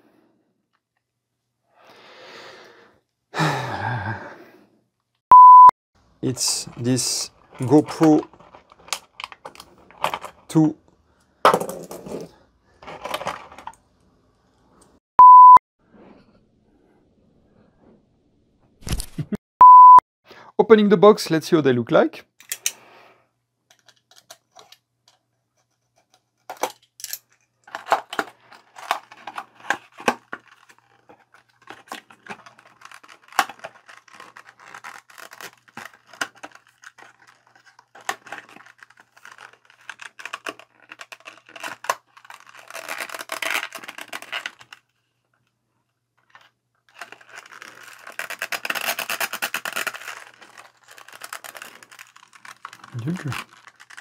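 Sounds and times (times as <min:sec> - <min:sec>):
cardboard tearing: 0:27.7 - 0:44.9, 0:46.9 - 0:54.0.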